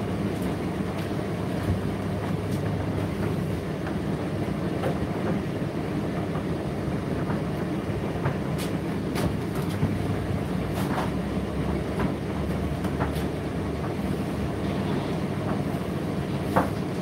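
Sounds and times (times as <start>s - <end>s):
tumble dryer rumbling: 0.0s - 17.0s.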